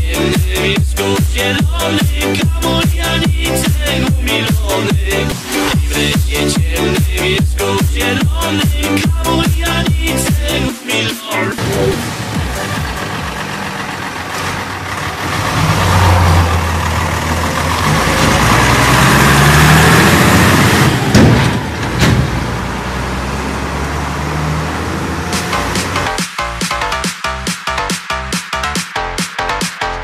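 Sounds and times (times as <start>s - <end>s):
tractor diesel engine accelerating: 0.0s - 30.0s
sharp knocks: 21.1s - 22.4s.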